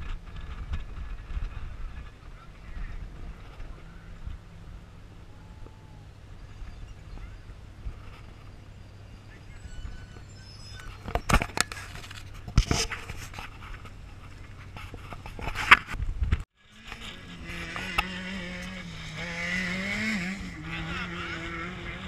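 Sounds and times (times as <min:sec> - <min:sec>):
race vehicle engine running: 0:00.0 - 0:15.9, 0:16.6 - 0:22.0
sharp knocks and scrapes: 0:10.2 - 0:16.0.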